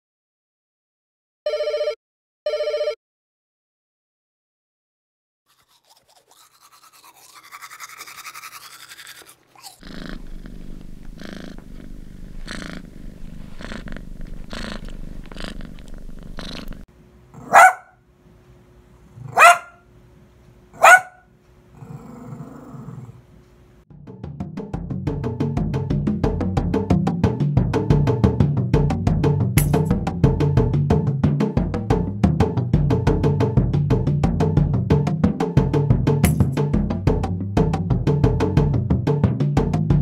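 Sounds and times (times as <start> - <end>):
phone ringtone: 1.5 - 3.0
cat purring: 9.6 - 16.9
small dog barking: 17.4 - 18.0, 19.2 - 19.8, 20.8 - 21.3.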